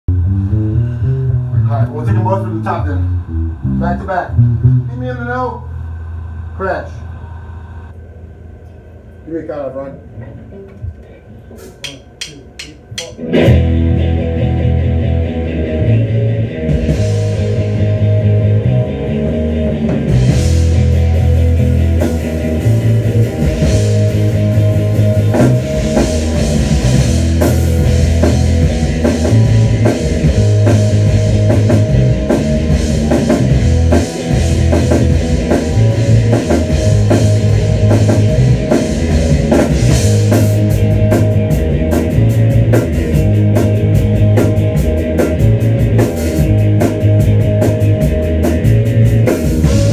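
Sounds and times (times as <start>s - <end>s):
bass guitar: 0.0s - 8.0s, 11.6s - 49.9s
electric guitar riff: 0.1s - 8.0s, 13.1s - 49.9s
drum kit and cymbals: 11.5s - 14.2s, 16.5s - 49.9s.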